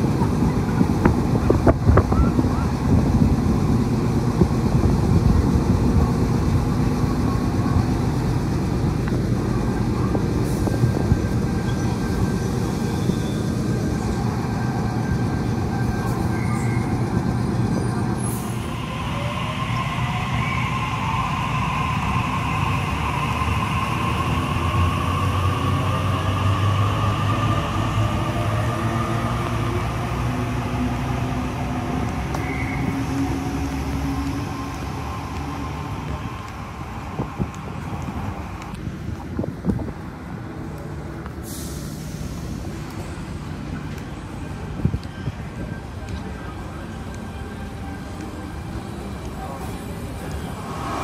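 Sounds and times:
train rumbling on rails: 0.0 - 51.0
rising whine: 10.8 - 38.8.

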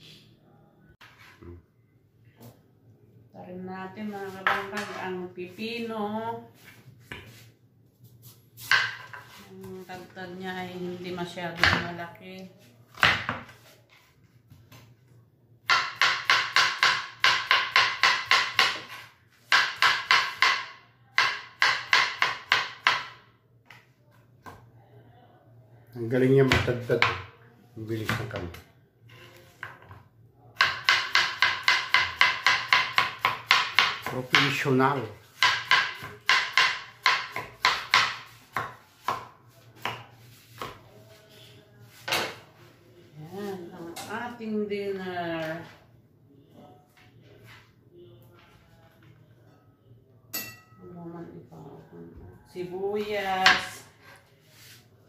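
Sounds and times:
knife chopping on cutting board: 8.6 - 9.4, 15.6 - 23.8, 30.6 - 34.6, 35.3 - 40.8.

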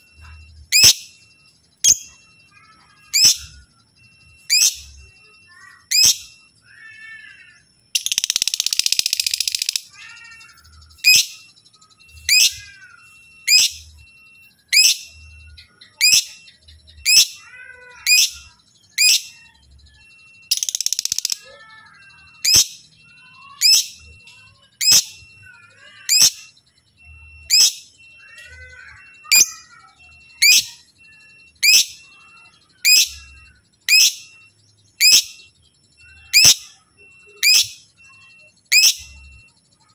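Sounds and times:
soft bird twittering: 0.0 - 39.9
bird chirping sharply: 4.4 - 14.0, 14.7 - 39.9
rapid bird chattering: 5.5 - 13.9, 20.1 - 39.2.

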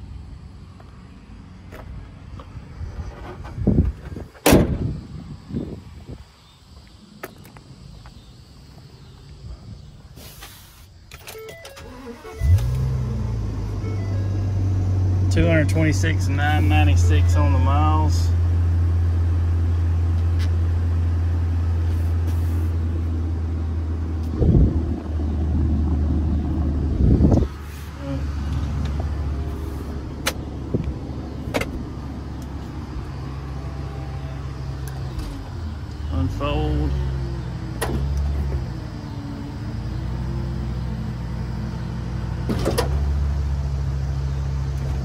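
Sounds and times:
rumbling bumps: 1.7 - 5.8, 23.9 - 33.3
sharp metal clunk: 4.4 - 4.8
truck engine idling: 11.5 - 45.0.

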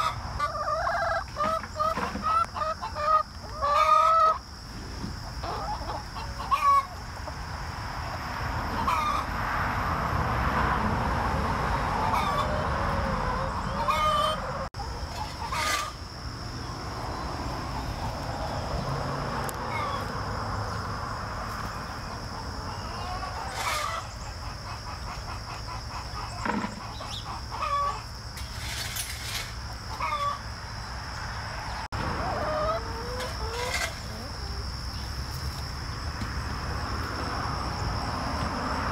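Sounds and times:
hens clucking: 0.0 - 7.5, 8.6 - 9.3, 11.6 - 16.0, 21.5 - 30.5, 32.0 - 35.6.

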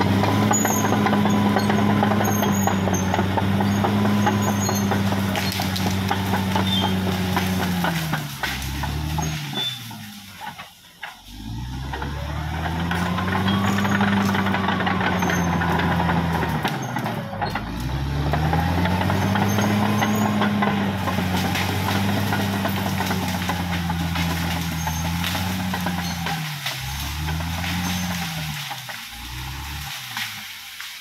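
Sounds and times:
bulldozer diesel engine working: 0.0 - 31.0.

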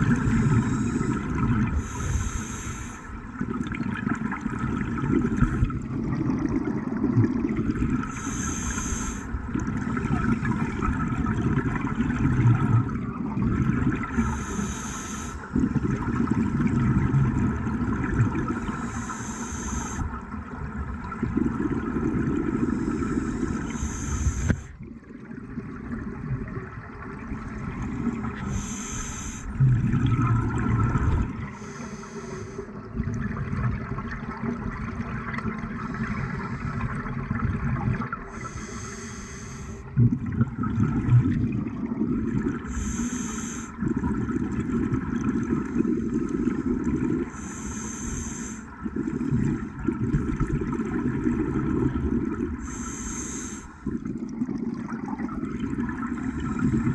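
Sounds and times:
exhaled bubbles rushing: 0.0 - 2.5, 3.2 - 14.5, 15.4 - 18.9, 20.1 - 31.8, 32.7 - 38.6, 39.8 - 43.0, 43.7 - 47.4, 48.7 - 52.9, 53.8 - 56.9
regulator inhale hiss: 0.2 - 3.2, 8.0 - 9.4, 14.1 - 15.6, 18.6 - 20.2, 22.6 - 24.8, 28.4 - 29.6, 31.5 - 32.8, 38.3 - 39.9, 42.6 - 43.8, 47.3 - 48.8, 52.6 - 54.0.

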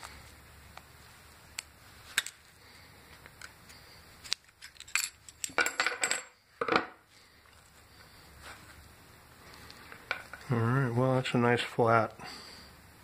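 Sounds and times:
tools clattering on wooden bench: 4.6 - 7.0.

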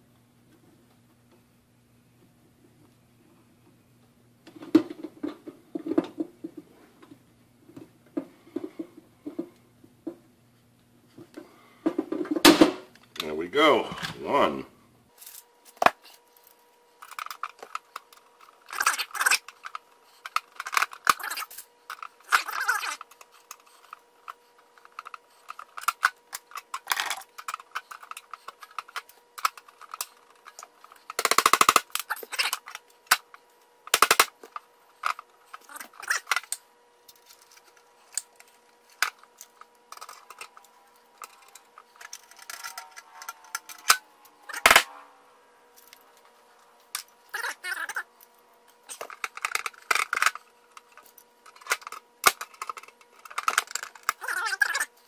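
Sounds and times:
faint steady hum: 0.0 - 55.0
rivet gun clicks and metal clatters: 48.9 - 54.2.

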